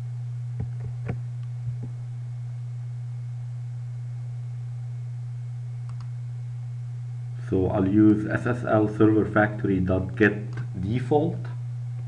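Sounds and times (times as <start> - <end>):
steady low hum: 0.0 - 12.0
short clicks: 5.8 - 6.2.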